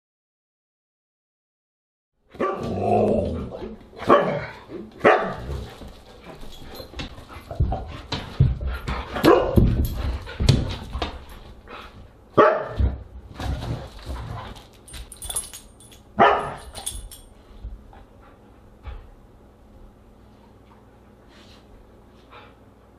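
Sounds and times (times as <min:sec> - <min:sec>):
dogs barking and yipping: 0:16.2 - 0:17.1.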